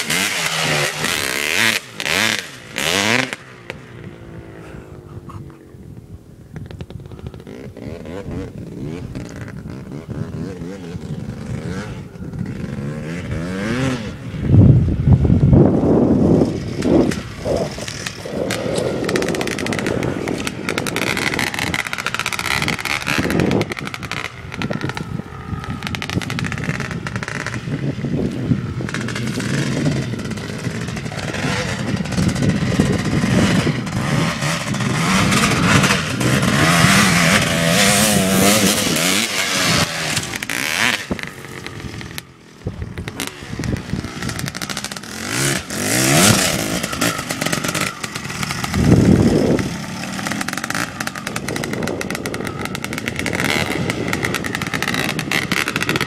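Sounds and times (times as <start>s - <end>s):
dirt bike engine revving: 0.0s - 5.7s, 7.0s - 56.0s.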